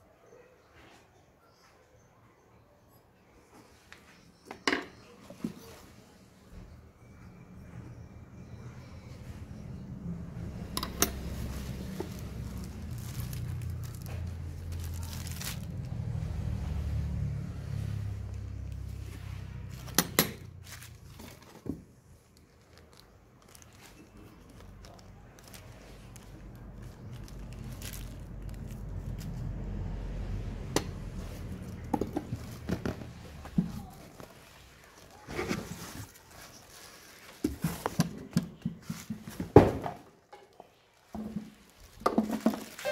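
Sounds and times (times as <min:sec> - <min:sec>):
plastic bag crinkling and tearing: 0:11.2 - 0:16.5, 0:22.2 - 0:29.5, 0:41.0 - 0:42.9.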